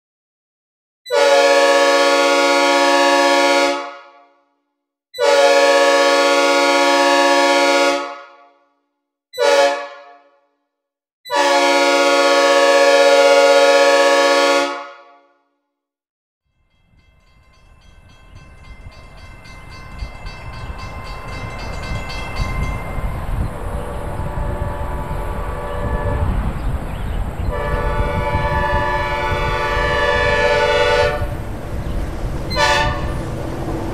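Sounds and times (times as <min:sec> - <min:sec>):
train air horn chord: 0:01.1 - 0:04.3, 0:05.2 - 0:08.6, 0:09.4 - 0:10.5, 0:11.3 - 0:15.5, 0:24.0 - 0:26.5, 0:27.5 - 0:31.4, 0:32.5 - 0:33.2
approaching train rumble: 0:16.5 - 0:33.9.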